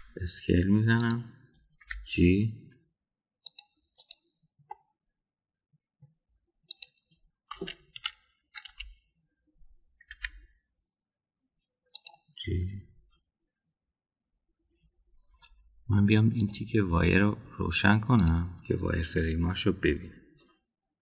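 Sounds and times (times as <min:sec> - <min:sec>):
keyboard and mouse clicks: 0:00.6 - 0:02.1, 0:03.4 - 0:04.9, 0:06.7 - 0:09.0, 0:10.0 - 0:10.5, 0:11.9 - 0:12.4, 0:16.4 - 0:16.6, 0:18.1 - 0:18.5.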